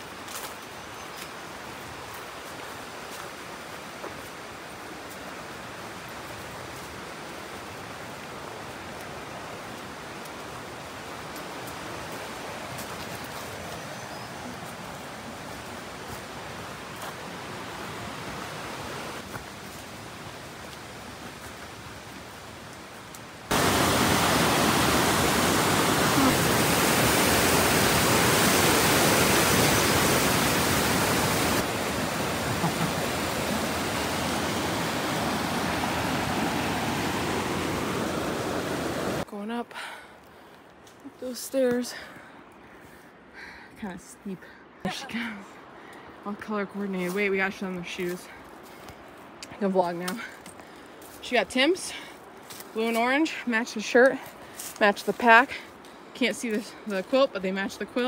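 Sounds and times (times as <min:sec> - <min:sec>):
rushing river water: 0:00.0 - 0:39.3.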